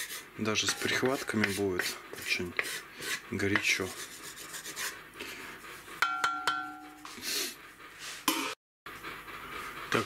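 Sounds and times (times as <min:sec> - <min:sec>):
wooden spatula scraping pot: 0:00.0 - 0:06.0
taps on pot ringing: 0:06.0 - 0:07.0.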